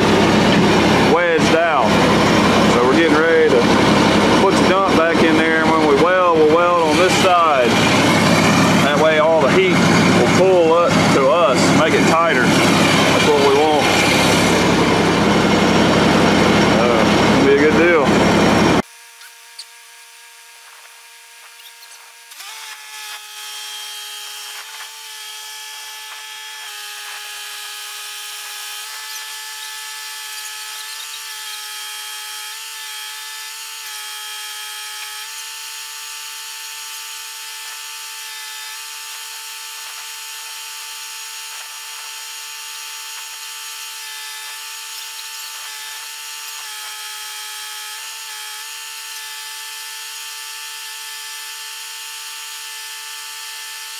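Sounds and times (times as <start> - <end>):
crane hydraulics whining: 0.0 - 19.8.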